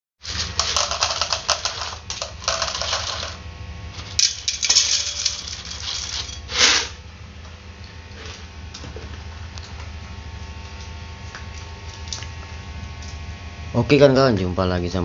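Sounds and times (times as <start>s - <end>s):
dry kibble poured into bowls: 0.2s - 3.4s.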